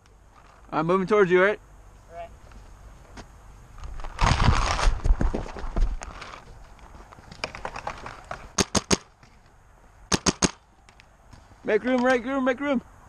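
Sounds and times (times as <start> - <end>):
running footsteps on grass: 2.4 - 7.4
paintball marker shots: 8.6 - 9.1, 10.1 - 11.0.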